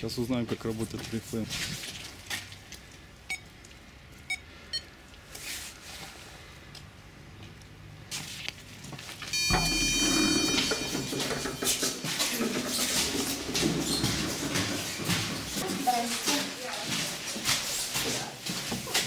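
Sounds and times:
electronic buzz tone: 9.4s - 11.9s
keypad beeping: 9.4s - 12.0s.

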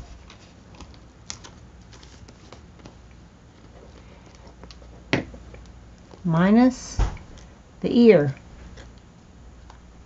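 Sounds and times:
paper rustling: 0.0s - 5.0s.

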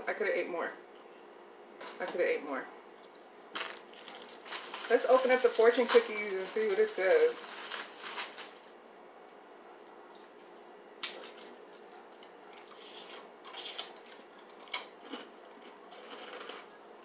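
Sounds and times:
cookie crinkling and crunching: 3.6s - 8.7s, 11.0s - 16.8s.

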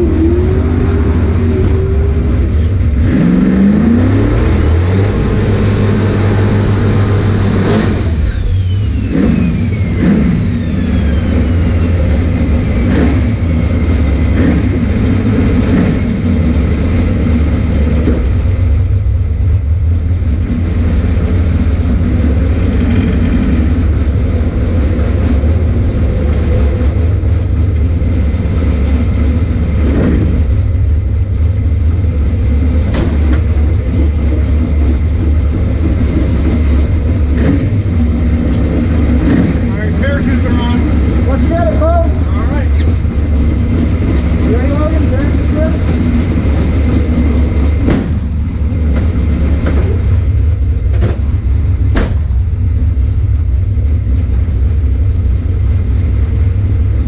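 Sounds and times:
car engine idling: 0.0s - 57.0s
high whine: 0.0s - 57.0s.

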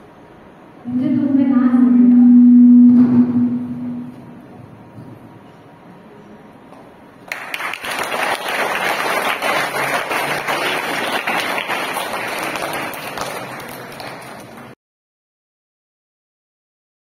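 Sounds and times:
children applauding: 7.3s - 14.8s.

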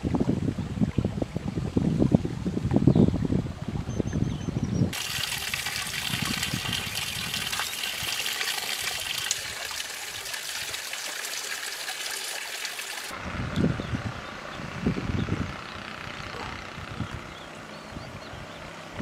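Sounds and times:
stream running over rocks: 4.9s - 13.2s.

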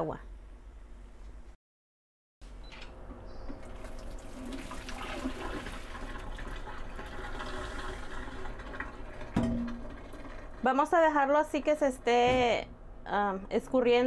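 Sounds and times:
water pouring into colander: 3.6s - 10.7s.

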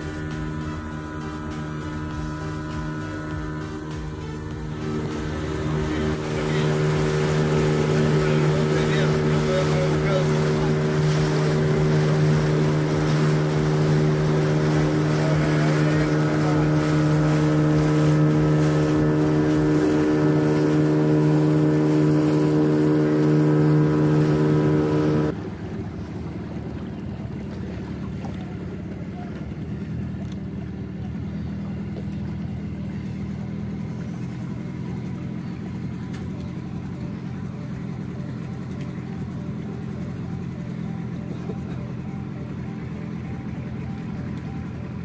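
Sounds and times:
outboard motor running: 0.0s - 45.0s
wind and water rushing: 2.7s - 28.9s.

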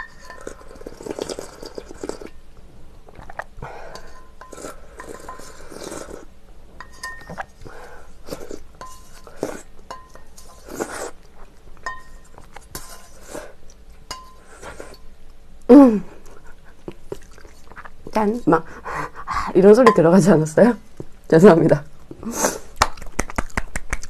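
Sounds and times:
metal bowl clinking: 6.8s - 7.6s, 9.9s - 10.6s, 11.8s - 13.2s, 14.1s - 14.5s, 19.7s - 20.3s.

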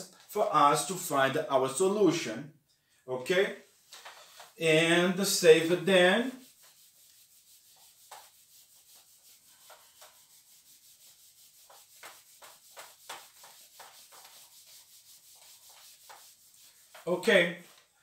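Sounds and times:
eraser wiping whiteboard: 3.6s - 17.9s.

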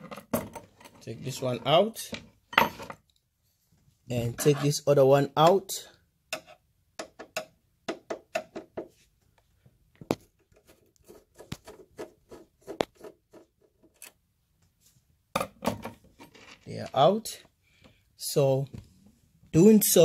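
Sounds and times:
screwdriver clicking and scraping metal: 10.4s - 14.2s.

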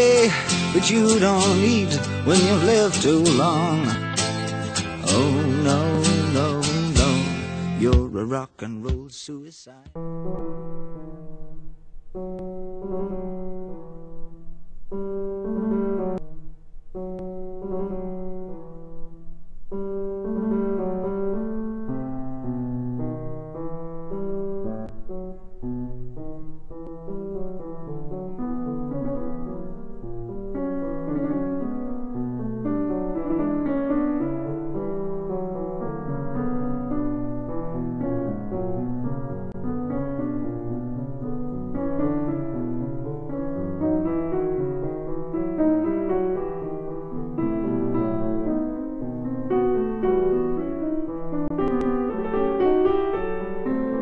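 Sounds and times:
piano music: 0.0s - 8.2s, 10.0s - 54.0s.

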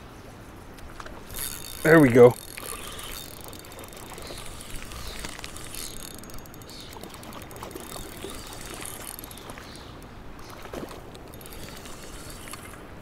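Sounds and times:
fishing reel clicking and whirring: 1.0s - 13.0s.

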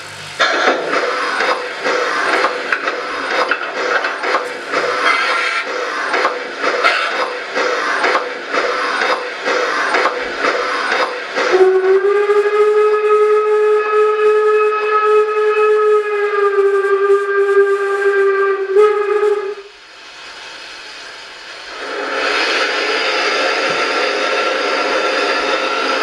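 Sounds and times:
steady steam hiss: 0.0s - 26.0s
steam whistle through loudspeaker: 11.5s - 19.8s.

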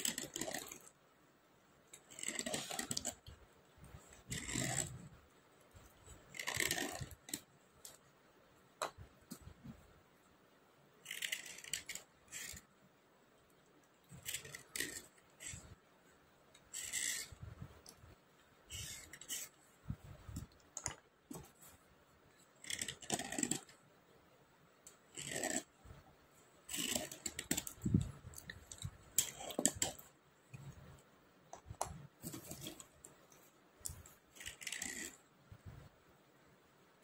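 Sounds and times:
slate pencil scratching: 0.0s - 0.9s, 1.9s - 3.3s, 3.9s - 5.1s, 5.8s - 8.0s, 11.0s - 12.7s, 14.1s - 15.8s, 16.6s - 17.4s, 18.7s - 19.6s, 22.4s - 23.8s, 25.1s - 25.8s, 26.6s - 30.1s, 34.3s - 35.2s.

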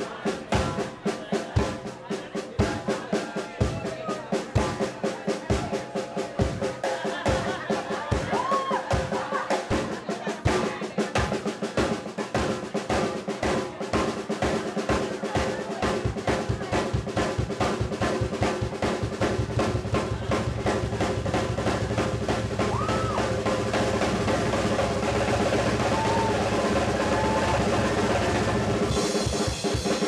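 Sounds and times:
drum kit solo: 0.0s - 30.0s
low bass drum rumble: 19.2s - 28.9s.

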